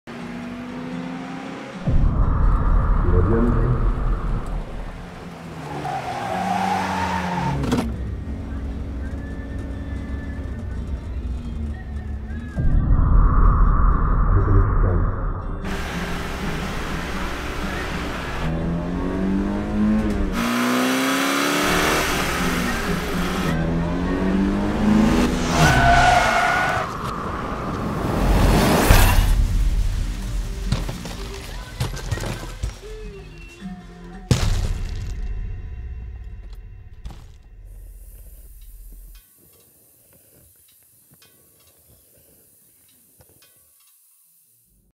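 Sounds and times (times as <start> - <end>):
car engine accelerating: 0.1 - 30.5
low rumble: 1.9 - 5.2, 12.1 - 17.3, 26.8 - 30.8
steady high tone: 12.6 - 16.2
loud crash: 26.8 - 31.0.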